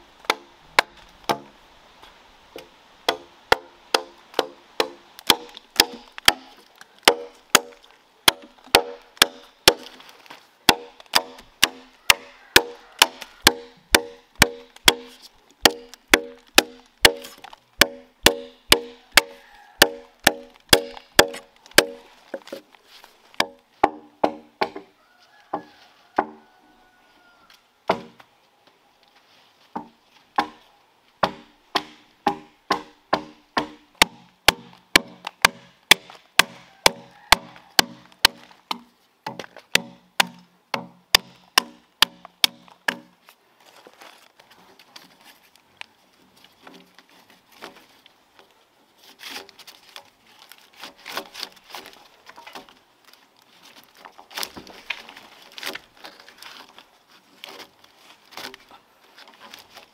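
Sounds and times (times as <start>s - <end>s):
axe chopping log: 0.2s - 1.5s, 2.6s - 22.6s, 23.4s - 24.9s, 27.9s - 28.2s, 29.8s - 30.6s, 31.2s - 43.1s.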